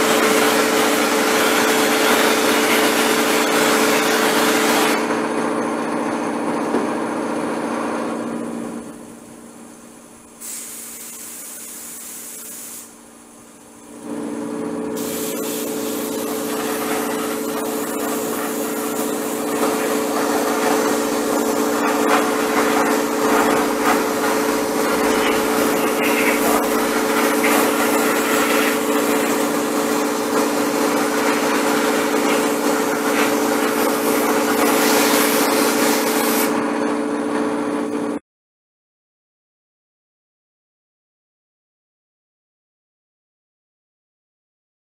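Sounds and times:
spray hiss: 10.4 - 13.0, 15.0 - 36.5
motor humming: 19.4 - 30.1.

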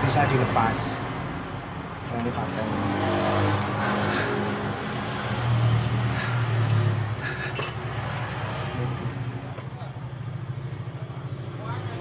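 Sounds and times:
metal tool clinking on steel: 7.4 - 8.4, 9.5 - 9.9.

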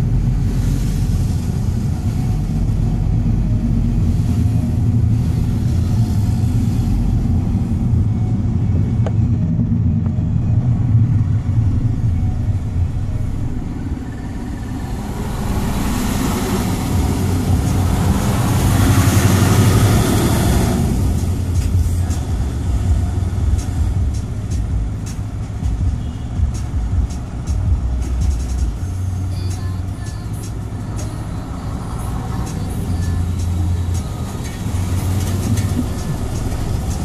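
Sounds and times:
truck rushing past: 0.0 - 29.3, 30.5 - 37.0
engine and road rumble: 0.0 - 37.0.

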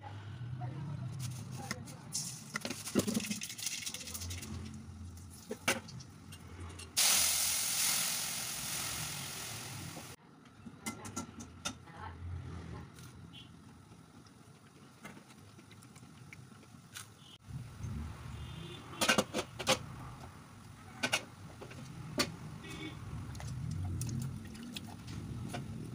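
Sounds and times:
hot oil sizzling: 7.0 - 10.2.

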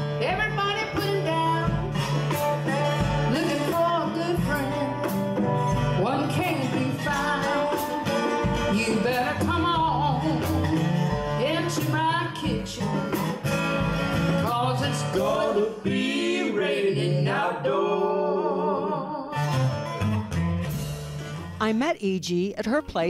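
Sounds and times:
second guitar: 0.0 - 15.6, 19.3 - 23.0
acoustic guitar strumming: 0.0 - 15.7, 19.3 - 21.9
drums: 0.0 - 16.3, 19.4 - 23.0
woman singing: 0.2 - 2.0, 3.2 - 13.5, 14.4 - 15.5.

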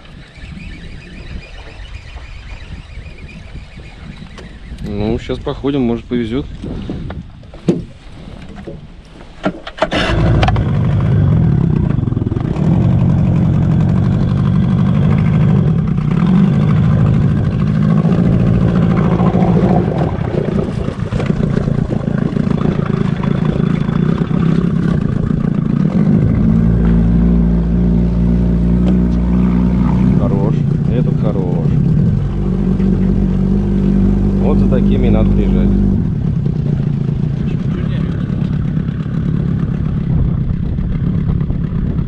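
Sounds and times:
outboard motor running: 9.8 - 42.0.

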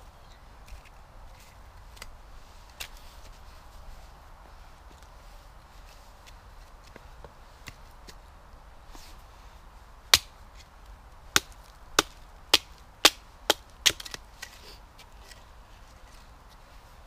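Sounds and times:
axe chopping wood: 10.1 - 10.4, 11.3 - 14.2.

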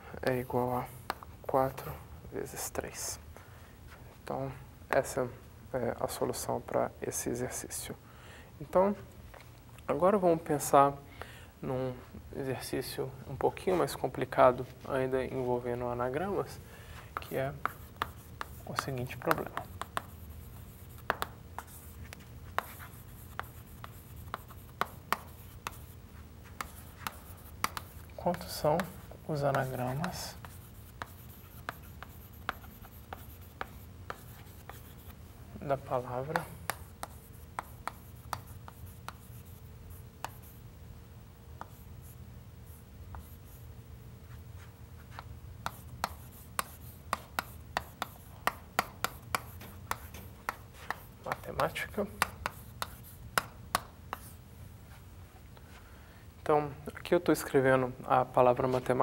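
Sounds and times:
low room hum: 0.0 - 59.0
chalk tapping and scratching: 16.4 - 40.6, 41.6 - 43.7, 44.3 - 55.0.

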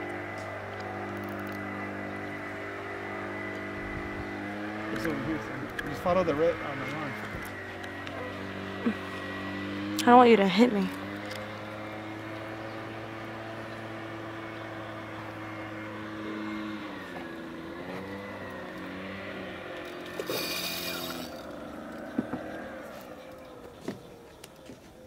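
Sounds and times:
engine running: 0.0 - 25.0.

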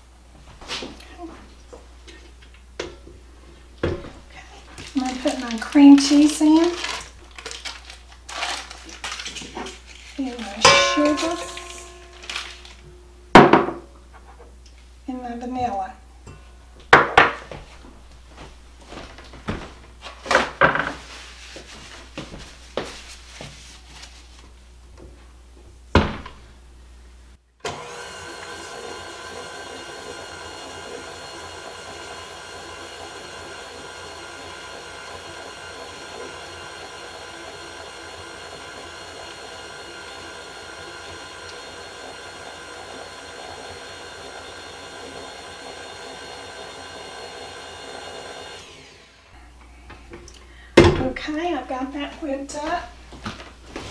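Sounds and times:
stand mixer motor whine: 27.6 - 49.3.

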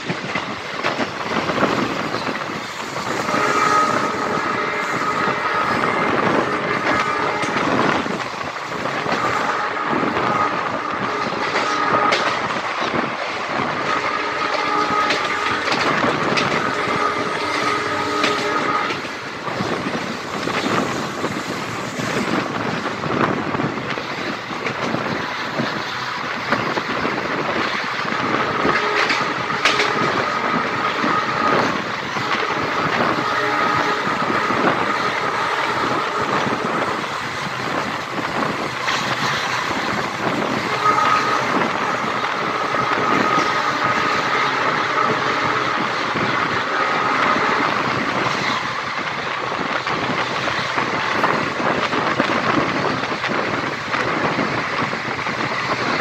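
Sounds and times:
train wheels rumbling on rails: 0.0 - 56.0
clicks over rail joints: 28.7 - 46.4.

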